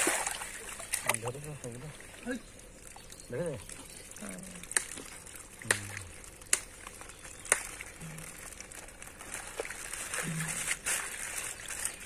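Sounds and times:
sharp splashes: 0.0s - 3.0s, 3.6s - 8.7s
water splashing and lapping: 0.0s - 12.0s.

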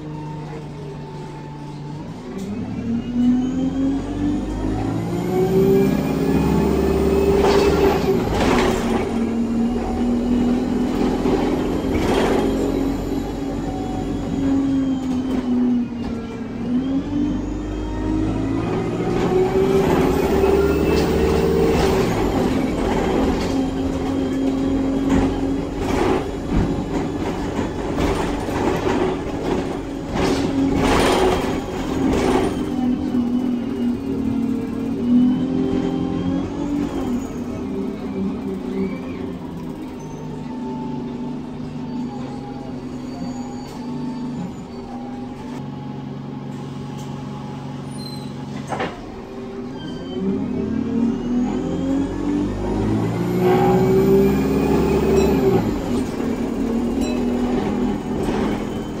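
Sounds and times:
bus diesel engine: 0.0s - 59.0s
bus gearbox whine: 0.0s - 59.0s
knocks and rattles from bus body: 6.0s - 16.5s, 18.6s - 35.0s, 48.0s - 49.5s, 54.6s - 59.0s.

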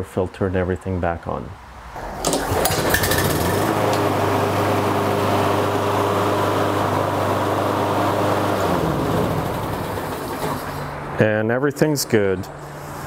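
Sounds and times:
lawn mower engine running: 2.0s - 11.0s.

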